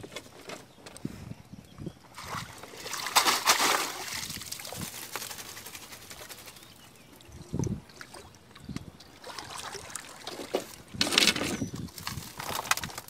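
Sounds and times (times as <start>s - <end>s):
water splashing and pouring: 2.2s - 6.4s.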